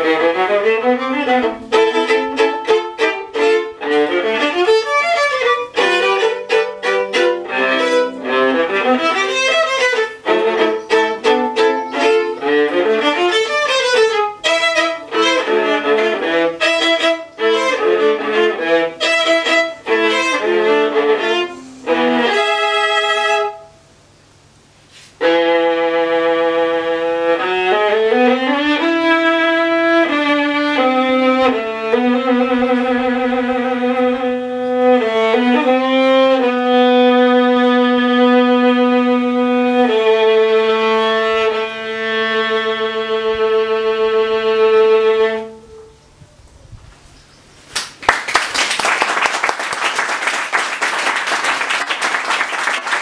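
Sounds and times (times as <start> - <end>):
solo viola bowed: 0.0 - 23.8, 25.2 - 46.1
applause: 47.8 - 53.0.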